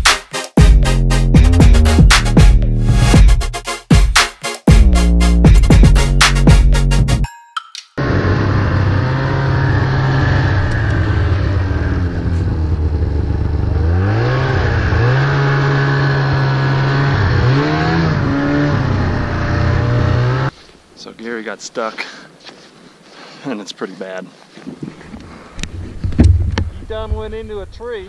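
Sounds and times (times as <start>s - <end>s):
snowmobile engine revving: 8.0s - 20.5s.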